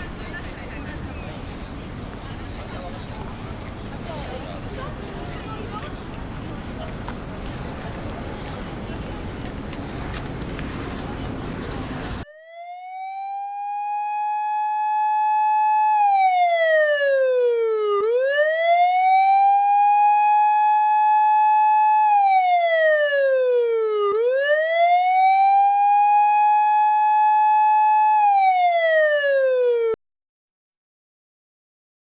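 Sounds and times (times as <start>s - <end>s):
police car siren wailing: 11.2s - 30.0s.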